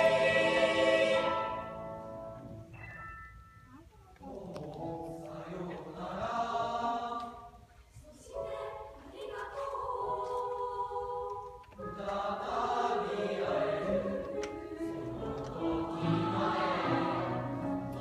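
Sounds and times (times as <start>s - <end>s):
choir singing: 0.0s - 2.2s, 4.3s - 18.0s.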